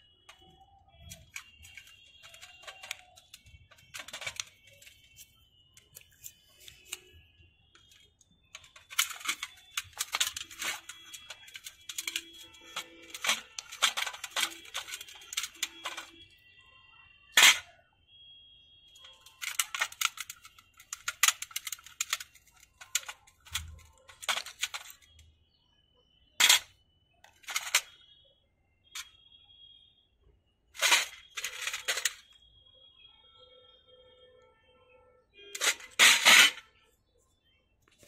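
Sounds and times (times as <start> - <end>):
metal parts clinking and scraping: 0.3 - 7.1, 7.8 - 16.3, 17.4 - 17.7, 19.0 - 25.1, 26.4 - 28.0, 30.8 - 32.3, 35.6 - 36.7.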